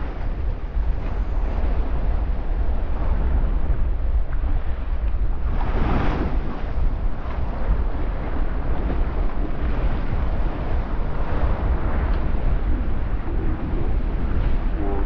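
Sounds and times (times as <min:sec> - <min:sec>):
sea waves washing: 0:00.0 - 0:15.0
wind buffeting the microphone: 0:00.0 - 0:15.0
wave breaking: 0:05.0 - 0:15.0.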